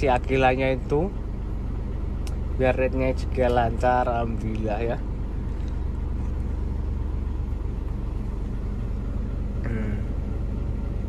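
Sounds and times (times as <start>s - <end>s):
diesel engine droning: 0.0s - 11.0s.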